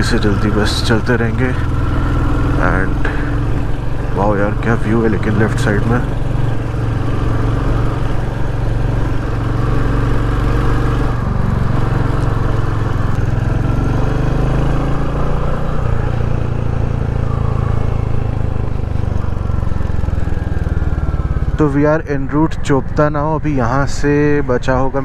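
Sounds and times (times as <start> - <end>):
motorcycle engine running: 0.0 - 24.9.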